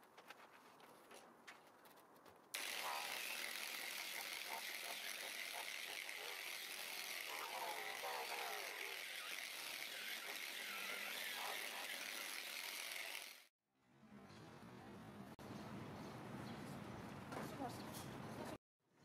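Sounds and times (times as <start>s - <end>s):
electric polisher whining: 2.6s - 13.5s.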